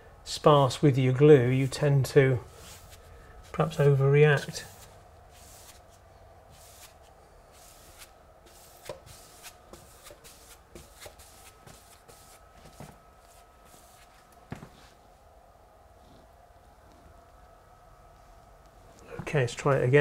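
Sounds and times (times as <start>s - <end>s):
pasting brush swishing on wall: 1.5s - 15.0s.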